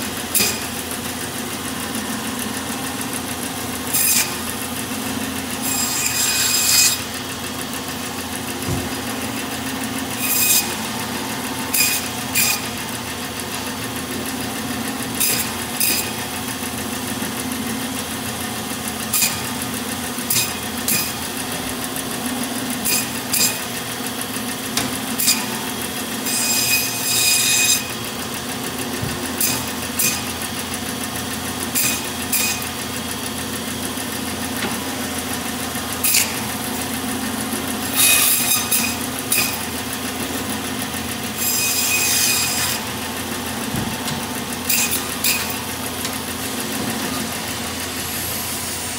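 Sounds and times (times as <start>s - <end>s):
band saw humming: 0.0s - 48.9s
saw blade rasping through bone: 5.6s - 7.1s, 10.1s - 11.0s, 11.7s - 12.9s, 15.1s - 16.3s, 19.1s - 19.5s, 20.3s - 21.4s, 22.8s - 23.8s, 25.1s - 28.0s, 29.4s - 30.4s, 31.8s - 32.7s, 36.1s - 36.5s, 37.8s - 39.8s, 41.3s - 43.0s.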